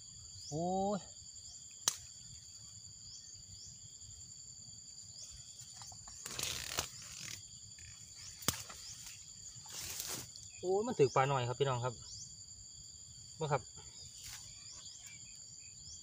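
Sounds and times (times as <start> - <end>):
crickets trilling: 0.0 - 16.0
grass and undergrowth rustling: 4.8 - 10.8, 13.9 - 15.4.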